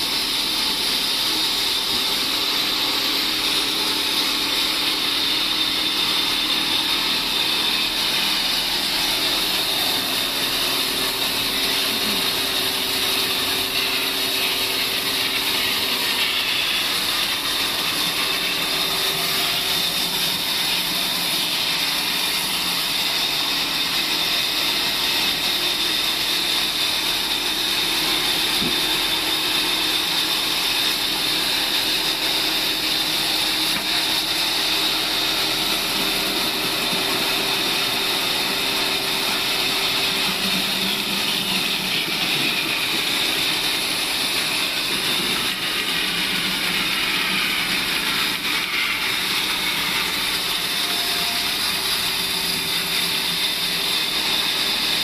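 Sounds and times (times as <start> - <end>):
band saw cutting log: 0.0 - 55.0.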